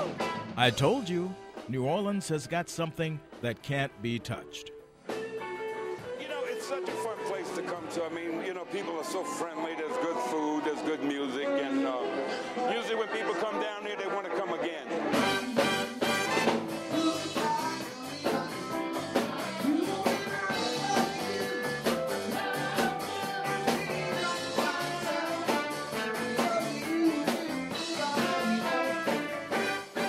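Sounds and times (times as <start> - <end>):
person singing: 0.6 - 4.7, 16.9 - 29.3
live blues band playing: 15.1 - 30.0.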